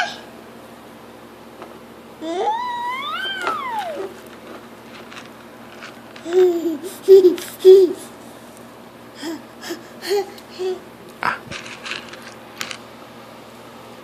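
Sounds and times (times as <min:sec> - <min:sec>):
toddler vocalizing: 0:02.2 - 0:04.2.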